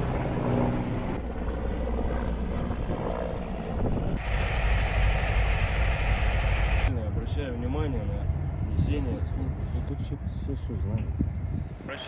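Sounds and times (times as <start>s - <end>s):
helicopter engine and rotor: 0.0s - 7.0s.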